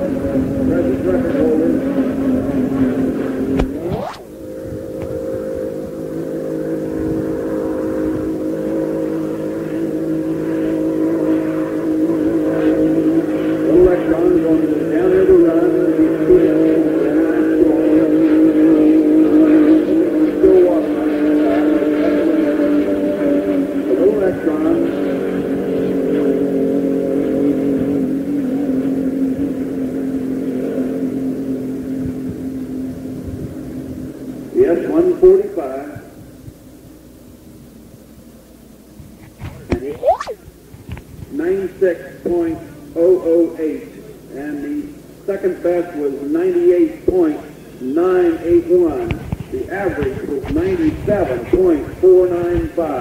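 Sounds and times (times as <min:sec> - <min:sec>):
boat engine at high revs: 0:00.0 - 0:34.1.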